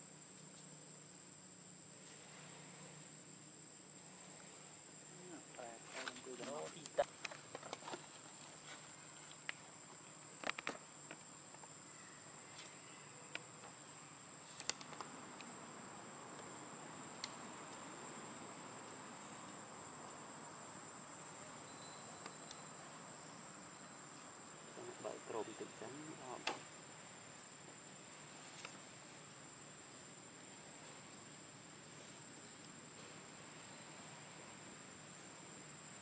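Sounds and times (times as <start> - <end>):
high-pitched insect drone: 15.0 - 32.6.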